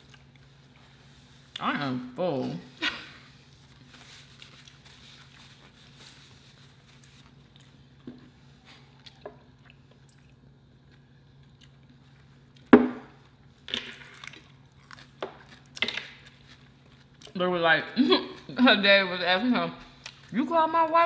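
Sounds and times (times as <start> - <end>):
faint chewing: 0.0 - 1.6, 3.4 - 17.4.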